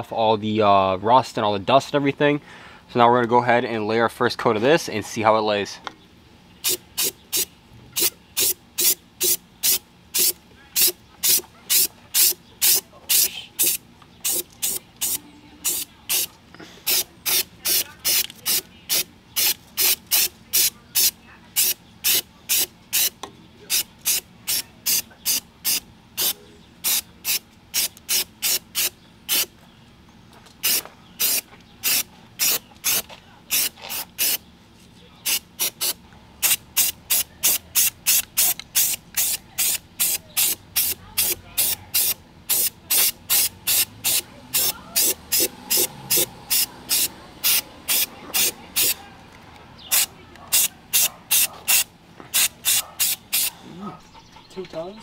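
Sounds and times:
aerosol can spraying: 6.6s - 23.1s, 23.7s - 29.5s, 30.6s - 34.4s, 35.3s - 49.0s, 49.9s - 53.5s.

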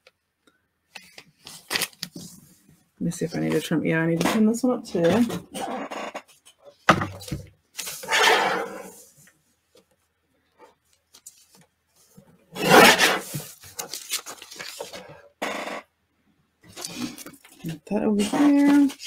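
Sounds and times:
paper rasping as it is cut: 12.6s - 13.9s.

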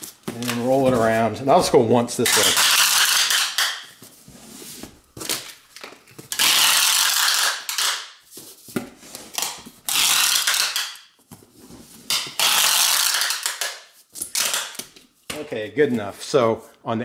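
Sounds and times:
packing tape rasping off tape gun: 2.3s - 3.9s, 6.3s - 8.1s, 9.3s - 11.0s, 12.1s - 14.9s.

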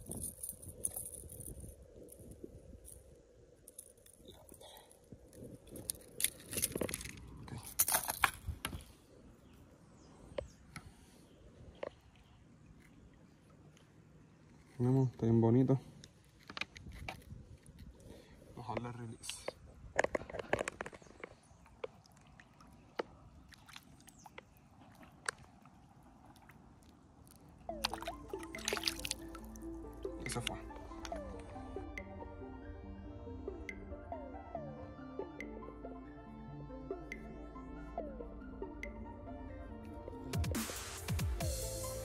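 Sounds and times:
metallic clinking and rattling: 0.0s - 2.2s
water lapping and dripping: 20.8s - 31.4s.

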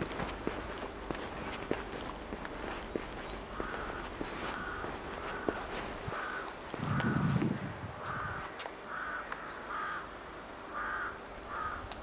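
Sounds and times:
crows cawing: 3.4s - 7.4s, 8.0s - 11.9s.

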